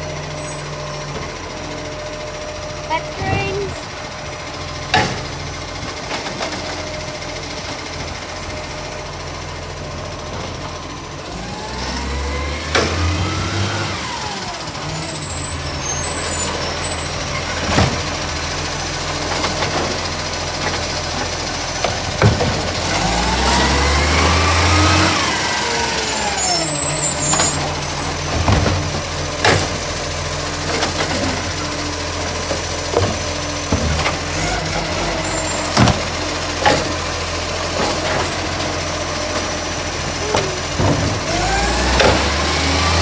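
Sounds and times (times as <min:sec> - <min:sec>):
garbage truck engine revving: 0:00.0 - 0:43.0
hydraulic arm whine: 0:11.4 - 0:18.4, 0:22.0 - 0:29.8.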